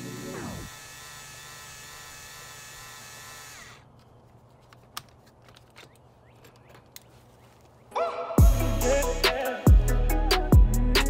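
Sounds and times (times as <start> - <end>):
power tool motor whining: 0.0 - 4.0.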